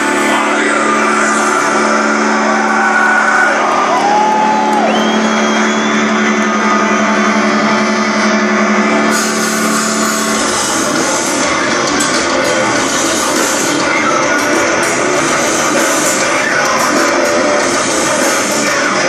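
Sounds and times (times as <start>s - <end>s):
droning guitar note: 0.0s - 3.9s, 4.6s - 19.0s
live heavy metal band: 0.0s - 19.0s
cymbals crashing: 5.9s - 19.0s.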